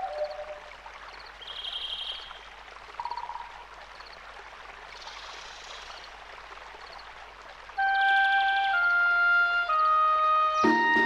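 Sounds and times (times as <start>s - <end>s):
small birds singing: 0.0s - 2.4s
steady rushing stream: 0.0s - 11.0s.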